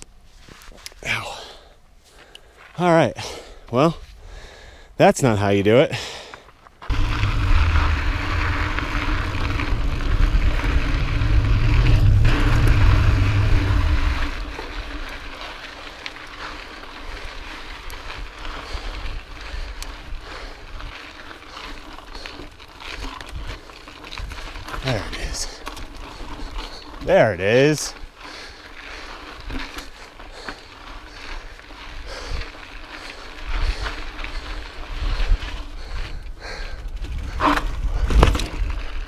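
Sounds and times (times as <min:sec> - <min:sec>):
mountain bike rolling over rocks: 0:06.6 - 0:39.0
loud low rumble: 0:06.9 - 0:15.0
wind buffeting microphone: 0:06.9 - 0:15.2, 0:31.0 - 0:38.3.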